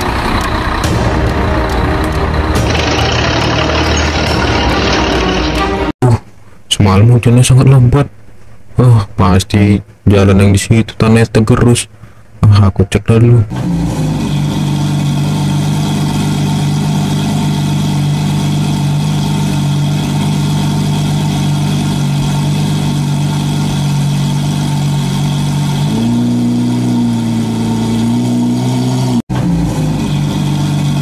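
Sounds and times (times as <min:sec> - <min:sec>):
simulated car engine: 0:00.0 - 0:06.0, 0:13.4 - 0:31.0.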